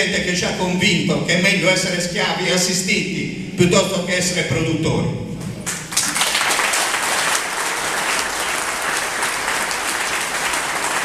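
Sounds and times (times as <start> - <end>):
audience applauding: 5.7 - 11.0.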